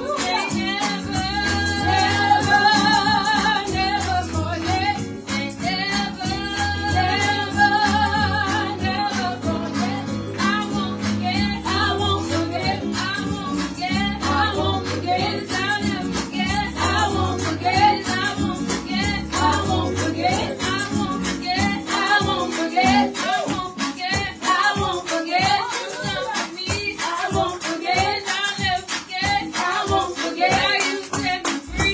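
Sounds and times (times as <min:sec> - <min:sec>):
music with bass and beat: 0:00.0 - 0:24.3
women singing gospel: 0:00.0 - 0:31.9.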